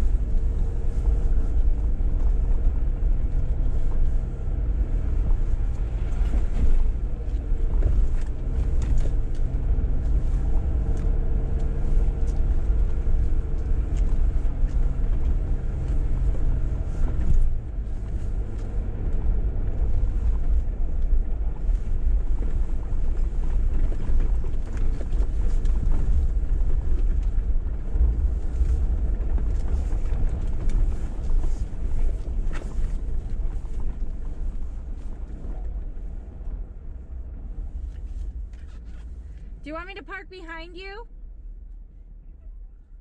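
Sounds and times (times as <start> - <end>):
engine rumbling: 0.0 - 43.0.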